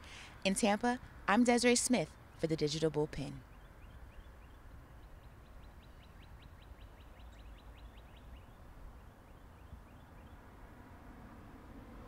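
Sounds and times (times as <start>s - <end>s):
faint bird trill: 3.4s - 10.4s.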